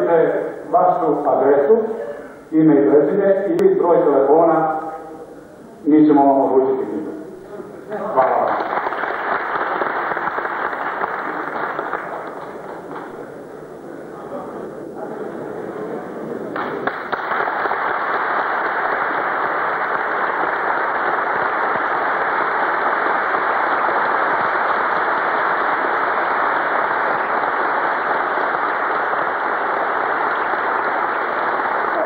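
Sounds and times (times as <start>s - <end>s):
audience applauding: 8.0s - 13.3s, 16.4s - 32.0s.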